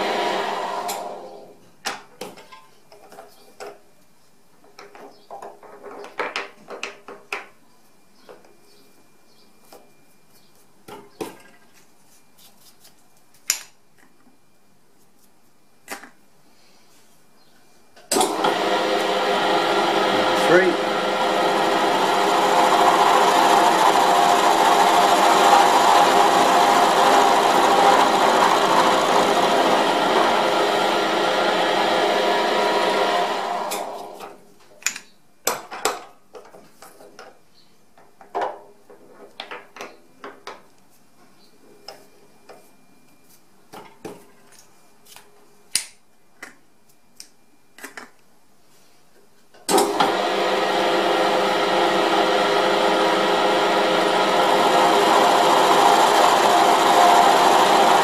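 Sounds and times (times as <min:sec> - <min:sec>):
milling machine cutting metal: 0:18.2 - 0:34.2, 0:51.3 - 0:58.0.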